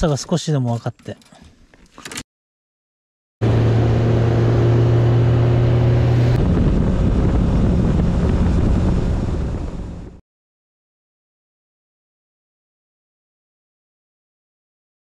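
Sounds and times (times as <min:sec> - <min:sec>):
wind buffeting microphone: 0:05.6 - 0:10.2.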